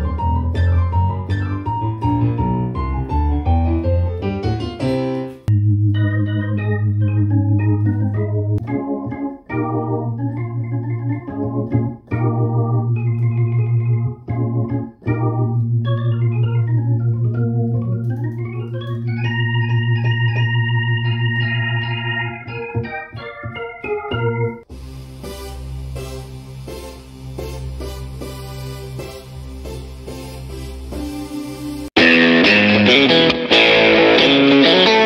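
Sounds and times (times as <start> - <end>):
electronic organ playing chords: 0.0 - 35.0.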